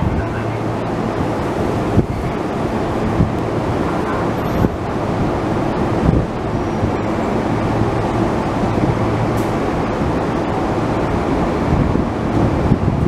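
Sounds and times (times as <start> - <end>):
constant rumble: 0.0 - 13.0
electric train equipment humming: 0.0 - 13.0.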